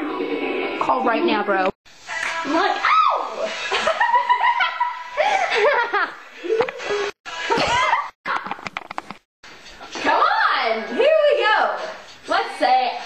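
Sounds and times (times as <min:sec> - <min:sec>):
girls laughing: 0:03.4 - 0:08.2.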